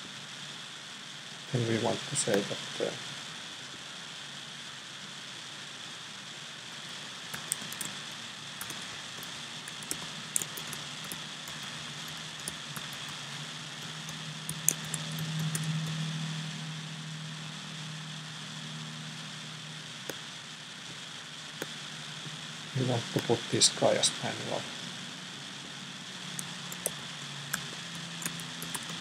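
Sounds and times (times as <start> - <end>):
steady machine hiss: 0.0 - 29.0
keyboard and mouse clicks: 2.2 - 2.6, 6.9 - 8.0, 8.6 - 16.0, 23.0 - 23.4, 26.4 - 29.0
low hum: 6.6 - 29.0.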